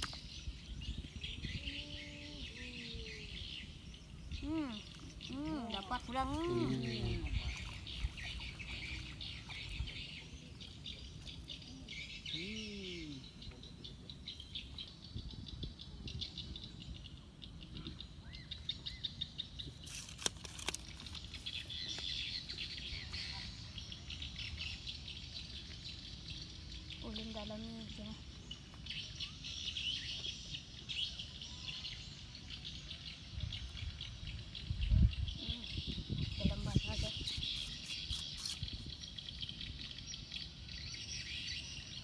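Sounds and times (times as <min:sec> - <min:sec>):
birds chirping: 0:00.0 - 0:19.9.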